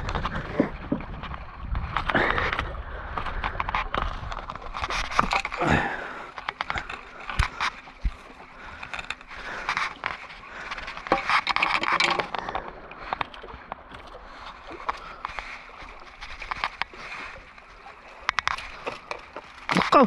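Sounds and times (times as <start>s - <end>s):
clicks and scrapes on rocks: 0.0s - 20.0s
seawater sloshing among rocks: 0.0s - 20.0s.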